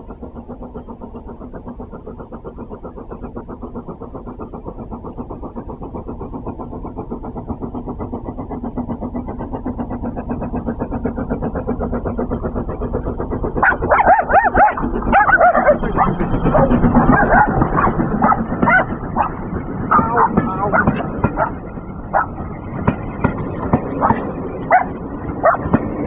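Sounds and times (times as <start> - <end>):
steam locomotive chuffing: 0.0 - 26.0
dog barking excitedly: 13.6 - 22.4, 24.0 - 25.8.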